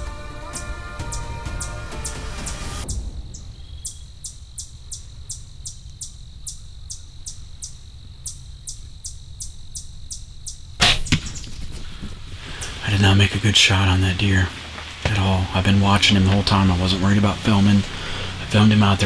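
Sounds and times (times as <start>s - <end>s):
crickets chirping: 0.0s - 19.0s
loud sharp crack of bow: 10.8s - 11.5s
low steady rumble: 12.0s - 19.0s.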